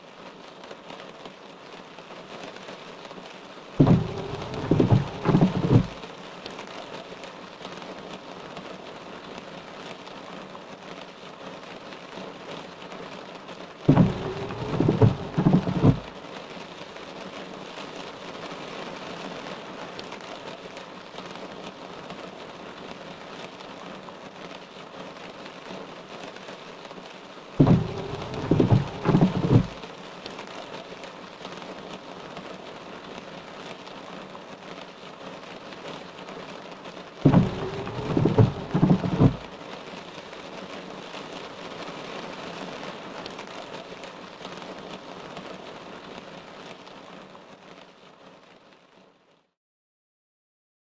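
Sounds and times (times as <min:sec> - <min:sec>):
steady rain: 0:00.0 - 0:49.6
wiper motor whirring: 0:03.8 - 0:06.0, 0:13.9 - 0:16.1, 0:27.6 - 0:29.8, 0:37.3 - 0:39.5
windshield wipers sweeping wet glass: 0:03.8 - 0:06.1, 0:13.8 - 0:16.2, 0:27.6 - 0:30.0, 0:37.2 - 0:39.6.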